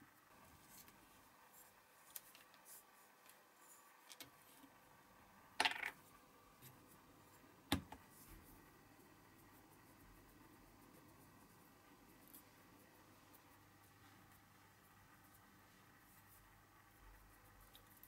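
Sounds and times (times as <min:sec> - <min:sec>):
faint clicks of small parts: 0:02.0 - 0:03.4, 0:04.0 - 0:04.7.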